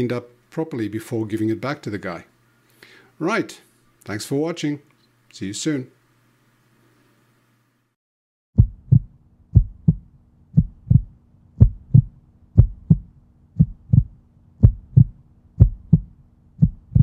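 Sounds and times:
heartbeat-like double thump: 8.6 - 17.0.

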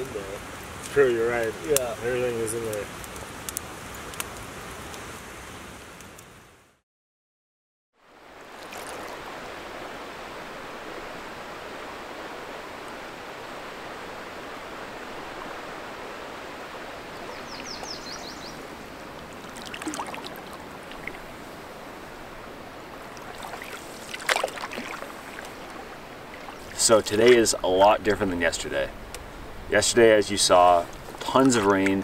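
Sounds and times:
water rushing around canoe: 8.1 - 32.0
bird trilling: 17.2 - 18.6
paddle splashes and knocks: 19.3 - 21.3, 23.0 - 27.4.

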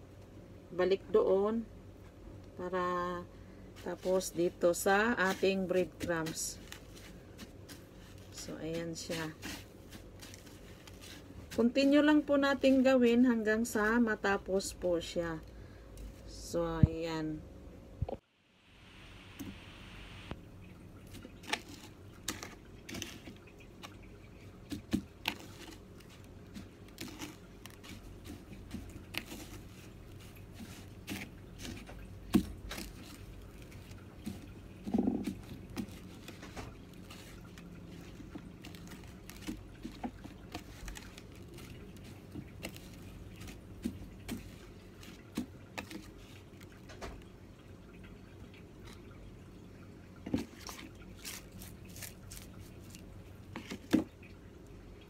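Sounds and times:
steady low background hum: 0.0 - 55.0
hands patting and tapping meat: 3.8 - 12.9, 21.1 - 47.2.

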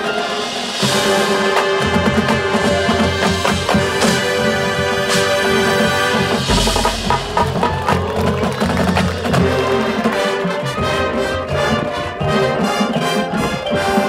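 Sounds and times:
sharp percussion strokes: 0.0 - 10.6
marching band playing: 0.0 - 14.0
brass sliding upward: 0.8 - 11.6
low boom: 6.4 - 9.4.

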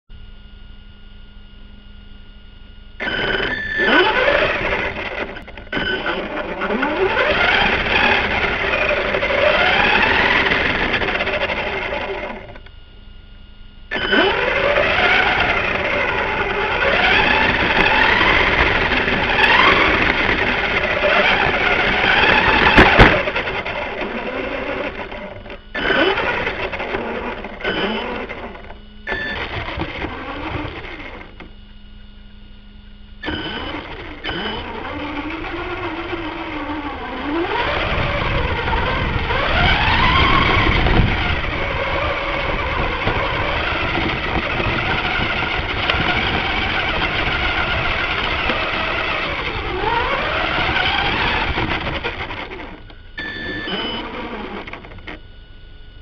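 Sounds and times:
faint electronic hum: 0.1 - 56.0
rc car motor whining: 3.0 - 12.8, 13.8 - 31.8, 33.2 - 55.4
tyres on gravel: 14.1 - 25.1.

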